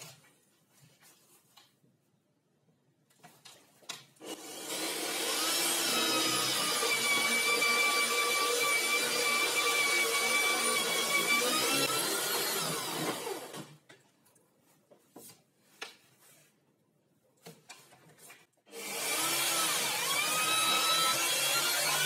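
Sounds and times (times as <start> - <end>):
electric drill cutting wood: 4.2 - 13.8, 18.7 - 22.0.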